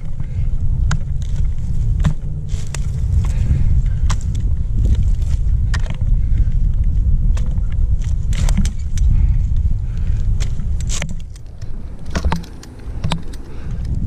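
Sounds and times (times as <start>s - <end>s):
wind rumbling on microphone: 0.0s - 14.0s
metal climbing hardware clinking: 10.2s - 14.0s.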